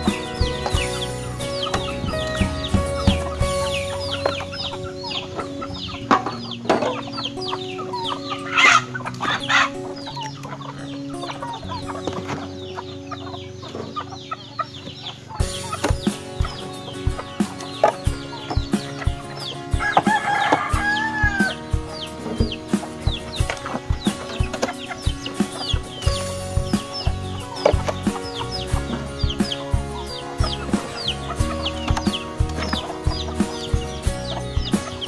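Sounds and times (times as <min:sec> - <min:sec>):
background music with beat: 0:00.0 - 0:13.0, 0:15.4 - 0:35.0
chickens clucking: 0:00.0 - 0:35.0
loud chicken call: 0:00.0 - 0:35.0.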